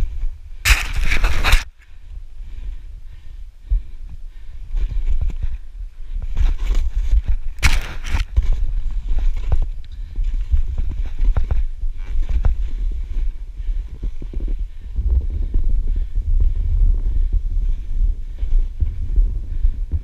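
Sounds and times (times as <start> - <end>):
wind buffeting microphone: 0.0 - 20.0
thuds and crunches through snow: 0.6 - 1.7, 6.2 - 16.8.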